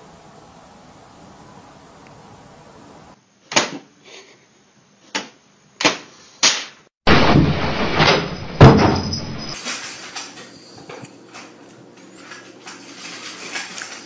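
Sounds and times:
heavy thump: 0:07.1 - 0:09.6
window blinds crashing and rattling: 0:07.1 - 0:10.6, 0:12.1 - 0:14.0.

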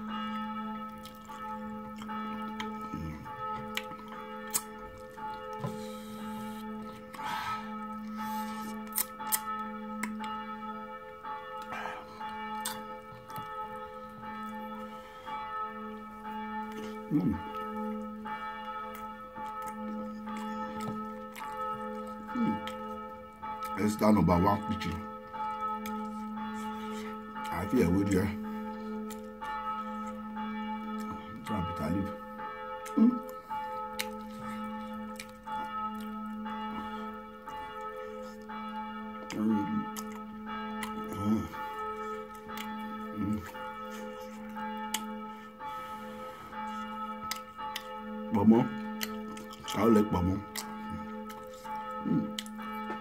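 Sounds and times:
bell-like chiming tones: 0:00.0 - 0:53.0
man eating by hand: 0:00.4 - 0:10.4, 0:16.6 - 0:24.0, 0:32.8 - 0:53.0
mouth noise: 0:17.1 - 0:17.6, 0:22.3 - 0:22.8, 0:32.9 - 0:33.3, 0:41.1 - 0:41.6, 0:43.2 - 0:43.6, 0:52.0 - 0:52.5.

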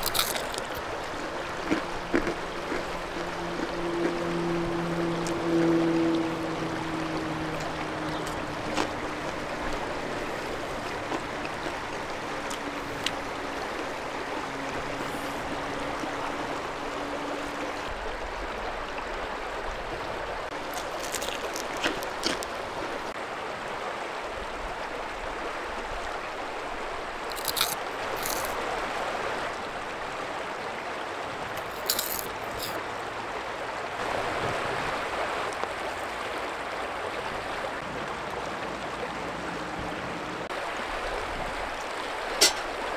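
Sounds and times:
river flowing over stones: 0:00.0 - 0:42.9
metal tongs clinking on rack: 0:42.4 - 0:42.7.

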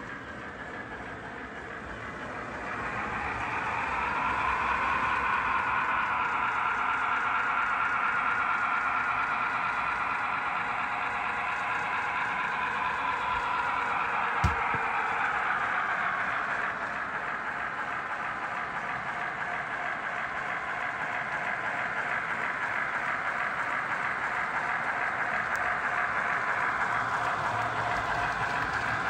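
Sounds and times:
model train whirring and rattling: 0:00.0 - 0:29.0
short knock: 0:14.4 - 0:14.8.

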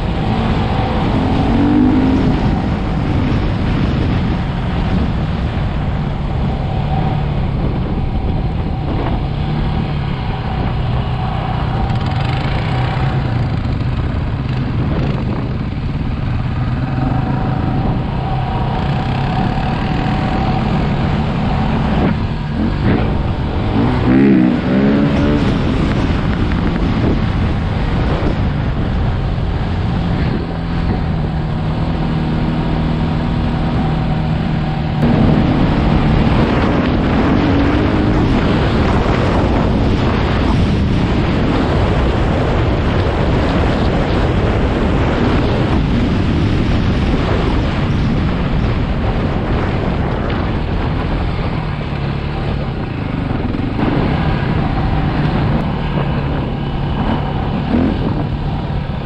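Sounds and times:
quad bike engine revving: 0:00.0 - 0:04.4, 0:08.8 - 0:26.4, 0:29.9 - 0:42.6, 0:52.0 - 0:59.0
wind rushing over microphone: 0:00.0 - 0:59.0.

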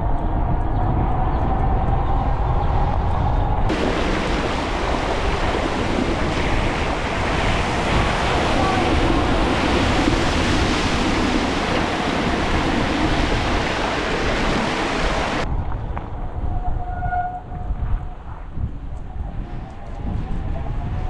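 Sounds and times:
bike tires spraying water: 0:03.7 - 0:15.5
passing car tires spraying water: 0:03.7 - 0:15.5.

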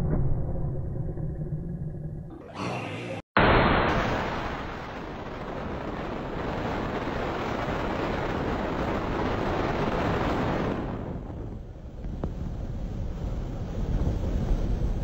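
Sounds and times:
wind rushing over microphone: 0:04.5 - 0:15.0.

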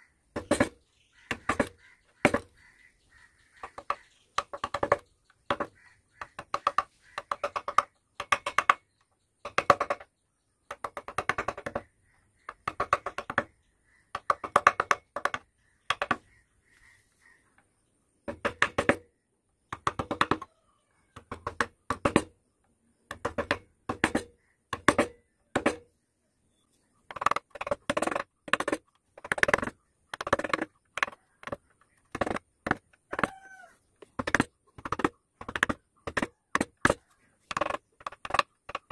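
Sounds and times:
carving gouge tapping into wood: 0:10.7 - 0:13.5.

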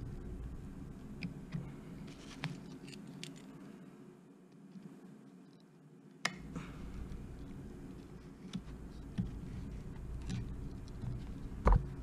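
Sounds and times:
low steady rumble: 0:00.0 - 0:03.0, 0:06.4 - 0:12.0.

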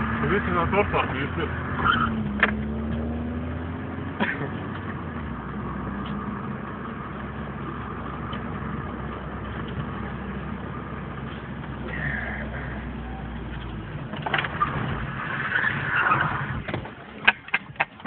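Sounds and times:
car engine and road noise: 0:00.0 - 0:18.0.

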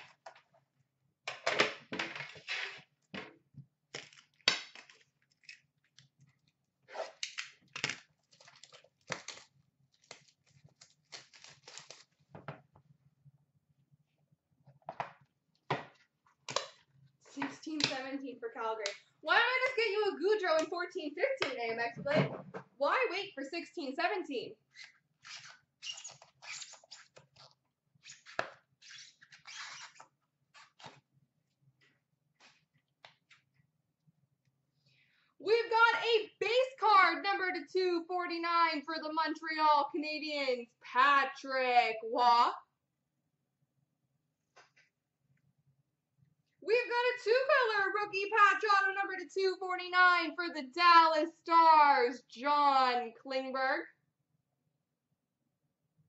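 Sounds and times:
plastic wrapping crackling: 0:07.7 - 0:12.2.

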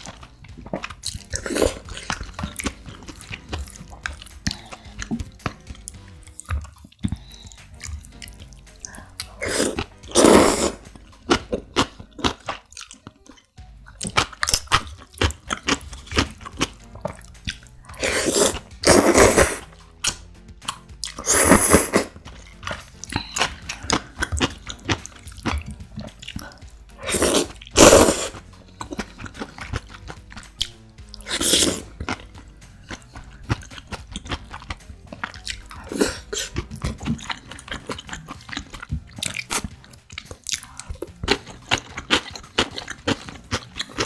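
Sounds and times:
wet chewing: 0:00.0 - 0:44.0
slurping noodles: 0:00.8 - 0:05.0, 0:07.1 - 0:11.0, 0:17.2 - 0:19.8, 0:21.1 - 0:29.9, 0:31.2 - 0:32.3.

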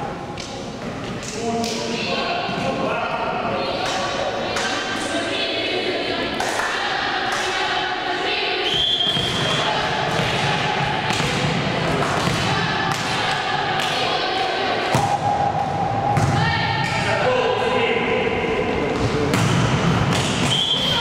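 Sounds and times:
players' voices: 0:00.1 - 0:21.0
referee's whistle: 0:08.6 - 0:09.7, 0:20.4 - 0:21.0
volleyball thuds: 0:14.9 - 0:16.9.

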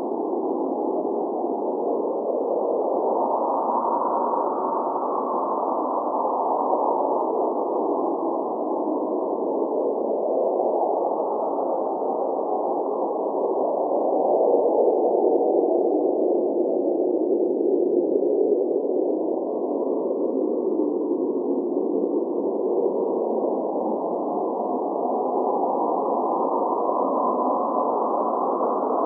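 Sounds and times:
muffled blizzard wind: 0:00.0 - 0:29.0.

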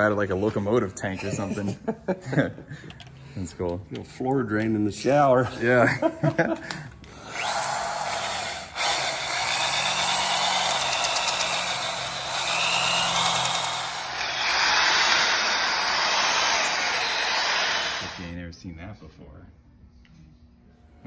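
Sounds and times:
pneumatic air drill whirring: 0:07.1 - 0:18.2.

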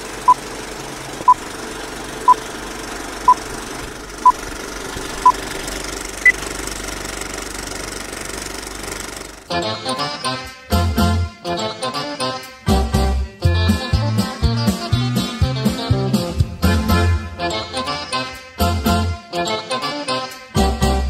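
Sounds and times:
film projector clatter: 0:00.0 - 0:09.5.

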